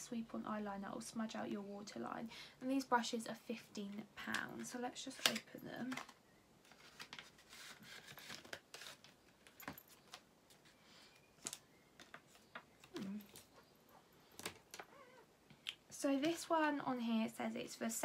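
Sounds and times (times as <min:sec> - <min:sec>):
packaging rustling and crinkling: 0:04.6 - 0:14.9
small packaging clicks: 0:11.3 - 0:13.6.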